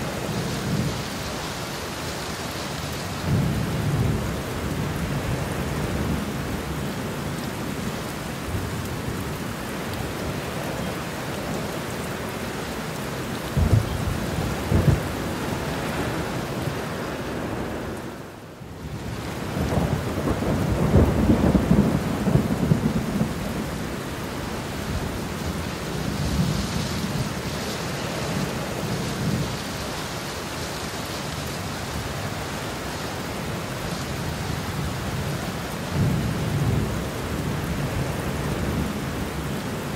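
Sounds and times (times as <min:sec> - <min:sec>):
heavy rain: 0:00.0 - 0:39.9
thunder claps and rolls: 0:13.6 - 0:15.1.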